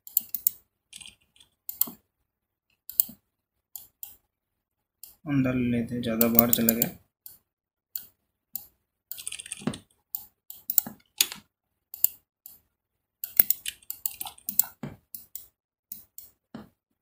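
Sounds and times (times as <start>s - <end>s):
mouse and keyboard clicking: 0.0s - 2.0s, 2.8s - 3.2s, 3.8s - 4.2s, 6.2s - 7.4s, 8.0s - 12.6s, 13.2s - 16.7s.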